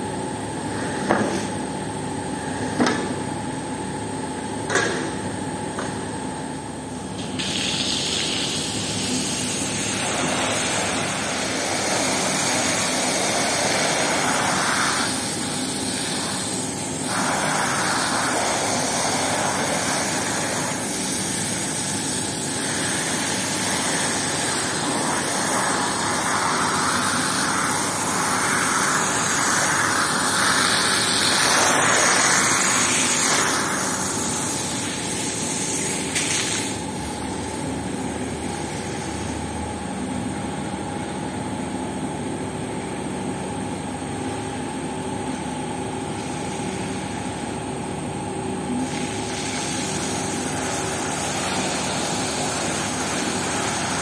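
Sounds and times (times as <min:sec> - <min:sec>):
pressure washer machine drone: 0:06.3 - 0:54.0
pressure washer spray: 0:07.2 - 0:36.8, 0:48.8 - 0:54.0.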